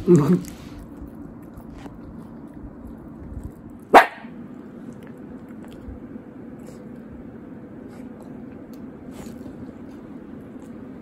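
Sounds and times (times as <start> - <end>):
small dog barking: 3.9 - 4.4.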